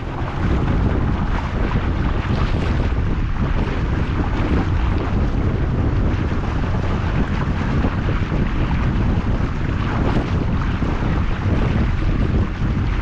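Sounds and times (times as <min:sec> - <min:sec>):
motor boat engine: 0:00.0 - 0:13.0
wind buffeting microphone: 0:00.0 - 0:13.0.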